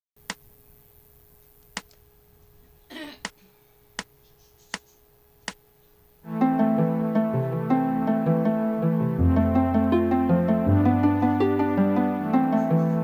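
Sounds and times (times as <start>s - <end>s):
faint steady hum: 0.2s - 13.0s
sharp clicks: 1.6s - 2.0s, 4.7s - 5.6s.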